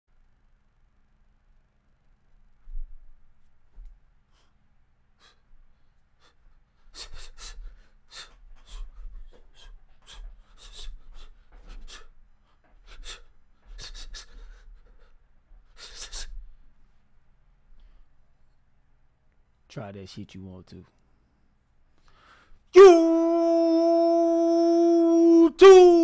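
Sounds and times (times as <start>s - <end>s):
man gasping and breathing hard: 6.2s - 16.6s.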